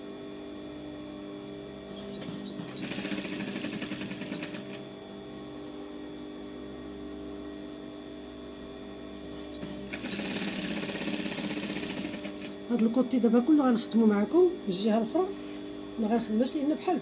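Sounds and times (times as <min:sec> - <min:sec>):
steady hum: 0:00.0 - 0:17.0
sewing machine stitching: 0:02.0 - 0:04.9, 0:09.3 - 0:12.6.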